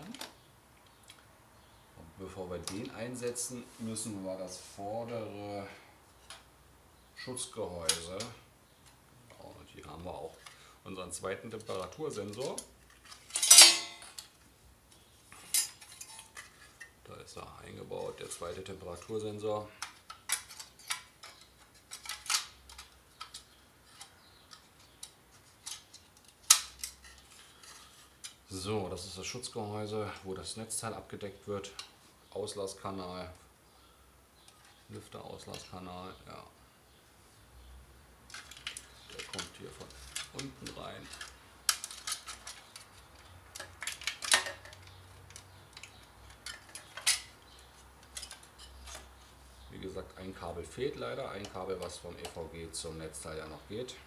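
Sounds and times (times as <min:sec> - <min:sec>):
plastic and metal parts clicking: 0:19.8 - 0:28.4, 0:38.3 - 0:49.1.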